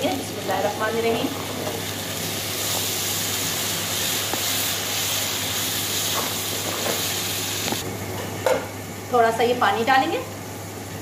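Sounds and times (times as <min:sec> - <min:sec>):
paste sizzling in hot oil: 0:00.0 - 0:07.8.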